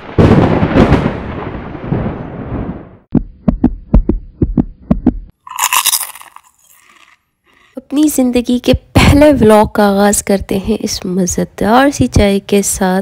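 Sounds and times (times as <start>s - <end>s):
booming hit: 0.0s - 2.8s
punchy drum-like thumps: 3.1s - 5.3s.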